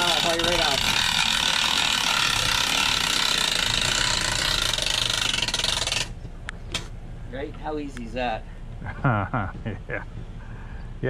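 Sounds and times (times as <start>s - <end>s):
winch ratcheting clicks: 0.0s - 6.2s.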